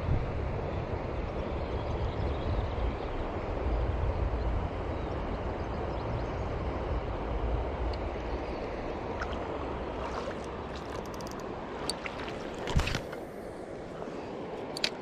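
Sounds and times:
river water rushing: 8.0s - 15.0s.

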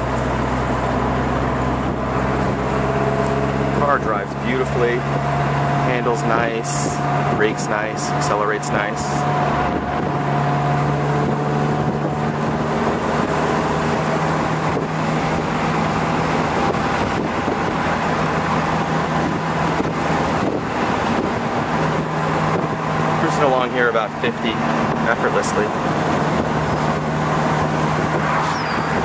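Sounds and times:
car engine running: 0.0s - 29.0s
wind and road noise: 0.0s - 29.0s.

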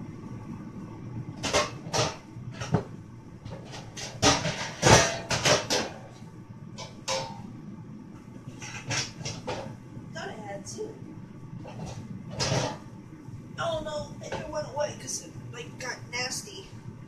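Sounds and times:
low background noise: 0.0s - 17.0s
pans knocking and clattering: 1.4s - 2.9s, 3.5s - 6.0s, 6.8s - 7.4s, 8.6s - 9.7s, 11.7s - 12.8s.

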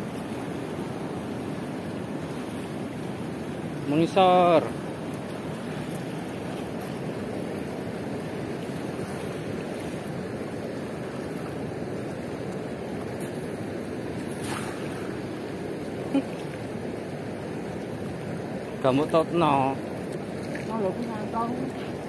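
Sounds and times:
river water rushing: 0.0s - 22.0s
cast net splashing on water: 14.2s - 15.4s.

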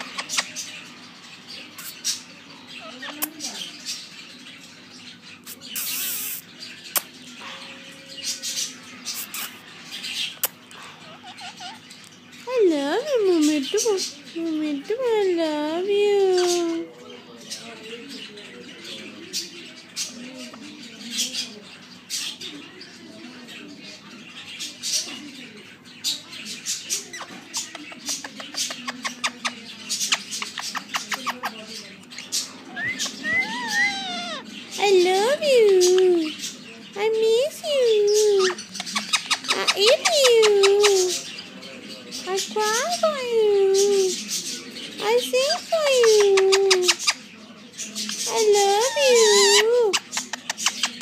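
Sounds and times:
parakeet chattering: 0.0s - 16.9s, 24.0s - 47.3s, 47.9s - 51.0s
parrot clicks and chirps: 5.5s - 7.2s, 32.8s - 34.4s.

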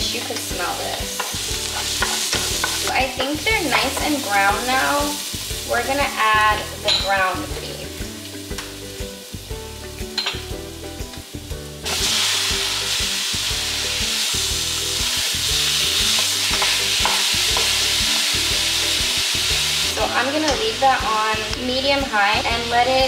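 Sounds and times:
meat sizzling: 0.0s - 23.0s
onions frying in oil: 0.0s - 23.0s
spatula scraping a pan: 1.2s - 4.2s.

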